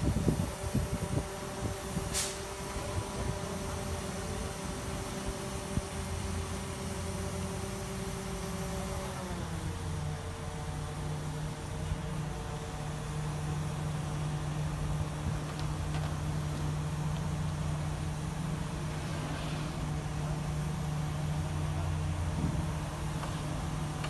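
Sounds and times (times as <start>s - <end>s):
crane engine humming: 0.0s - 24.0s.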